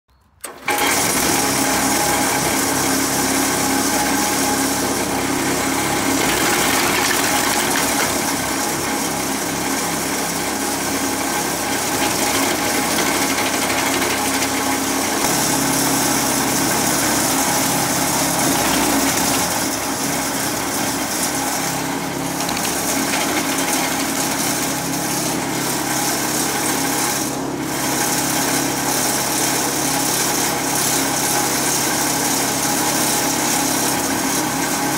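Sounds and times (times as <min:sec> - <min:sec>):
petrol engine running: 0:00.4 - 0:28.8
branches being cut up: 0:14.0 - 0:25.5.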